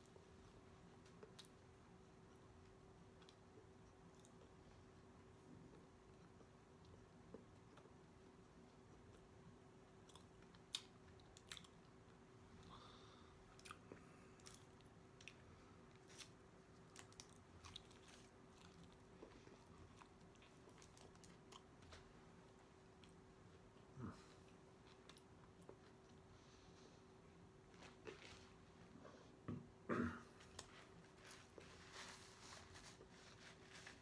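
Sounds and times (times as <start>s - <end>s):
faint steady hum: 0.0s - 34.0s
close-up chewing: 5.7s - 26.9s.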